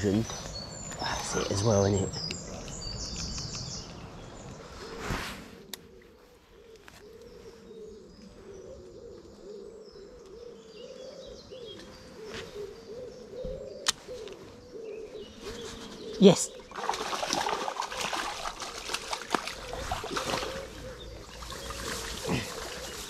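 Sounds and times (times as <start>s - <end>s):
songbird chirps: 0.0s - 23.0s
pigeon cooing: 5.8s - 16.6s, 18.0s - 23.0s.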